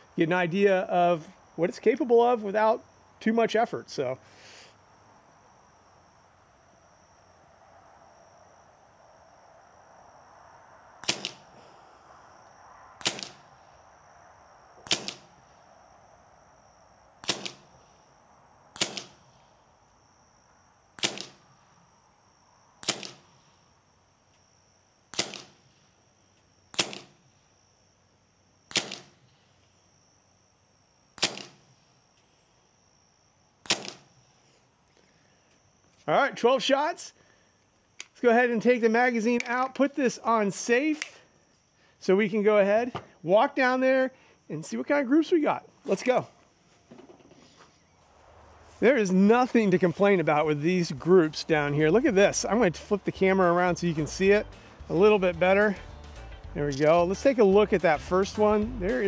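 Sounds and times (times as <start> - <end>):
high insect trill: 0.0 - 59.0
air pistol shots: 11.0 - 11.5, 13.0 - 13.4, 14.8 - 15.3, 17.2 - 17.7, 18.8 - 19.2, 21.0 - 21.4, 22.8 - 23.2, 25.1 - 25.6, 26.7 - 27.2, 28.7 - 29.2, 31.2 - 31.6, 33.6 - 34.1.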